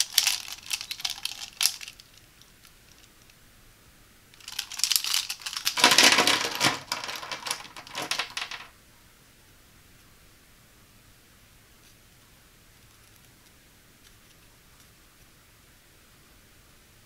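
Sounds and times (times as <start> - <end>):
plastic pens clattering: 0.0 - 2.2, 4.4 - 8.7.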